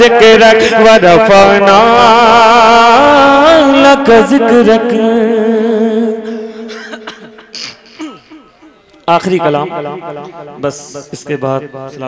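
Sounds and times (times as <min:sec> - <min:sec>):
man singing: 0:00.0 - 0:06.6.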